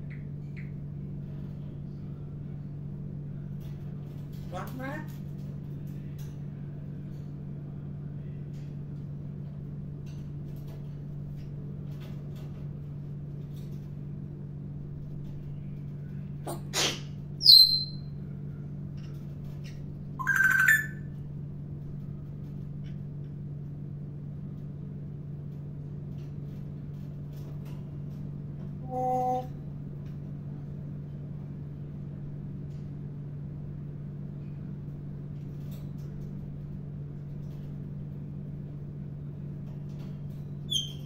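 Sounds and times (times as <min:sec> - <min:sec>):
low hum: 0:00.0 - 0:41.0
parrot whistling and calling: 0:16.8 - 0:18.0, 0:20.2 - 0:21.0.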